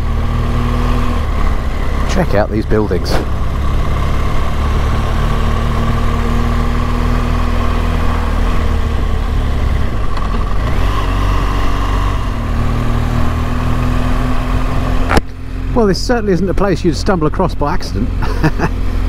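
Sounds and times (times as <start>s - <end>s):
motorcycle engine running: 0.0s - 19.0s.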